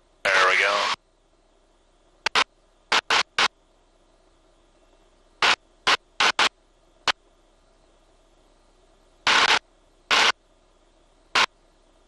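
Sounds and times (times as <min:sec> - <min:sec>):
short bursts of static hiss: 0:00.0 - 0:01.1, 0:02.2 - 0:03.8, 0:05.3 - 0:07.8, 0:09.2 - 0:11.9
faint steady background noise: 0:00.0 - 0:12.0.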